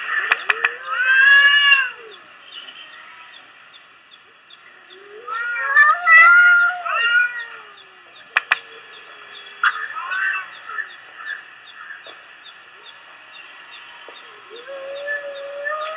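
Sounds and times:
cats yowling: 0.0s - 2.3s, 4.9s - 8.2s, 9.6s - 11.4s, 14.4s - 15.9s
sharp clicks: 0.2s - 0.8s, 8.2s - 9.4s.

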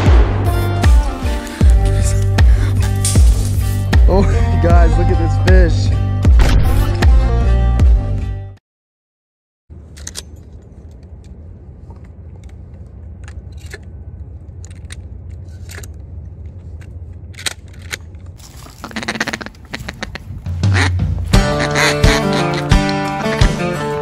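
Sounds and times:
steady low rumble: 0.0s - 4.8s, 9.7s - 23.5s
footsteps on gravel and leaves: 2.9s - 3.9s, 18.4s - 21.6s.

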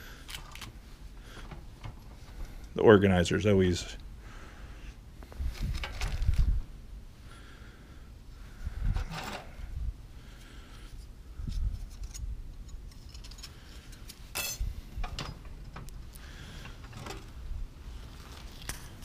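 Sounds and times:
screws and nails rattling: 11.8s - 15.4s
hardware clattering: 14.3s - 15.8s.

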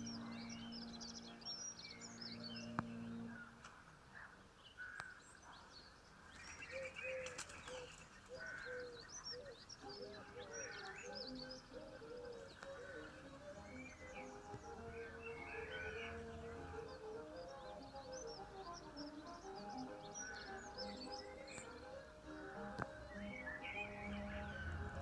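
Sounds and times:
instrumental music: 0.0s - 3.7s, 9.8s - 25.0s
small birds chirping and trilling: 0.0s - 25.0s.

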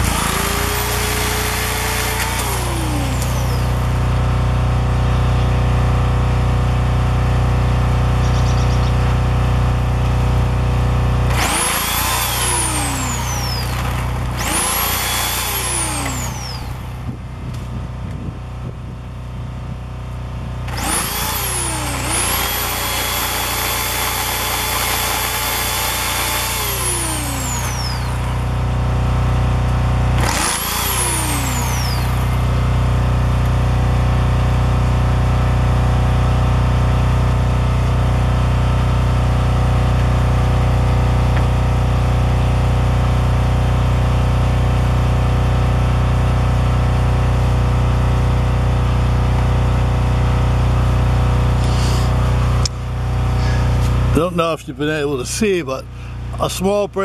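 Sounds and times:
chainsaw cutting branches: 0.0s - 4.0s, 11.1s - 17.1s, 20.6s - 33.6s, 51.4s - 54.2s
low pulsing hum: 0.0s - 56.4s.

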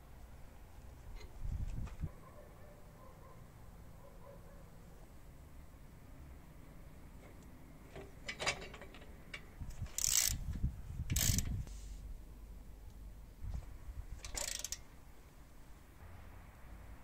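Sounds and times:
socket ratchet clicking: 9.9s - 10.4s, 11.1s - 11.6s, 14.2s - 14.8s.

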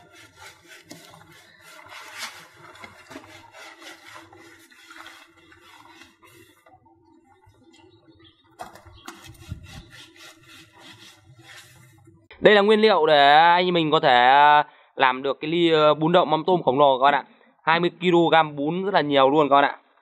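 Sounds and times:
leaves rustling on a bamboo tray: 0.0s - 6.7s.

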